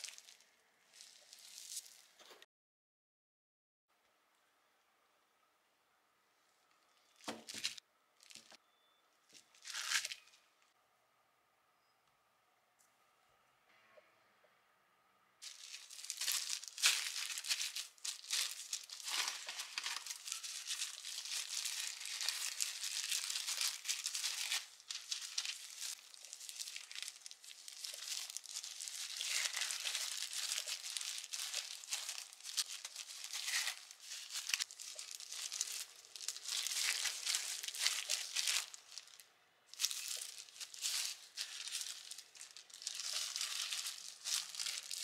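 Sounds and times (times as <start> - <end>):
plastic gloves crinkling: 0.0 - 2.2, 6.5 - 8.6, 9.2 - 10.4, 15.4 - 45.0.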